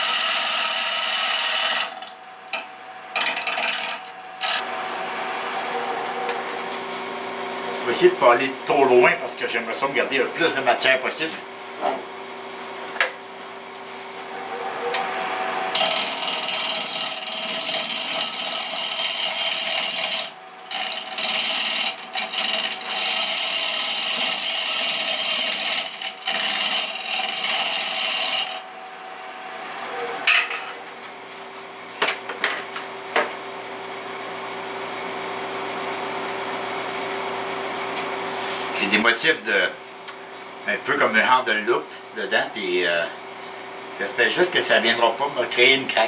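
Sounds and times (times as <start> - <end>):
wood lathe humming: 0.0 - 12.4, 13.6 - 32.0
gouge cutting wood hissing: 15.2 - 28.6.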